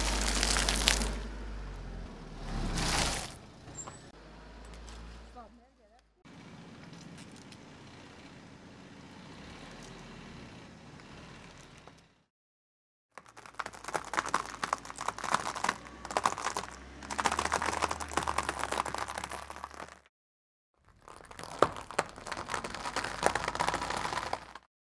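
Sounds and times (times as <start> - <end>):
tyre crushing dry pasta: 0.0 - 1.3, 2.7 - 3.4, 13.2 - 20.1, 20.8 - 24.7
tyre pressing squishy ball: 13.2 - 20.0, 20.9 - 24.6.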